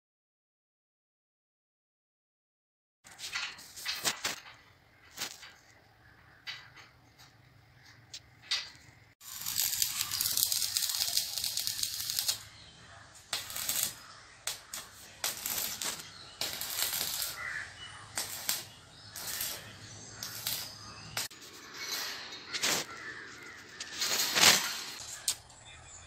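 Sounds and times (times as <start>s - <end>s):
arc welding crackling: 3.3s - 5.6s, 9.2s - 25.5s.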